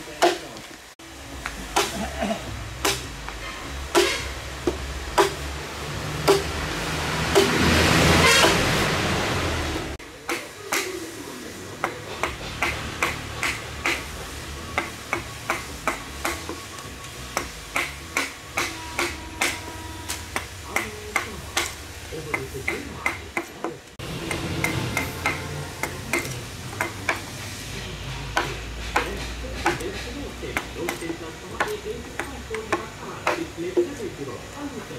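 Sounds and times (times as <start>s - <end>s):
chisel striking wood: 2.8s - 5.5s, 6.2s - 6.6s, 7.3s - 7.7s, 11.8s - 27.4s, 28.2s - 33.9s.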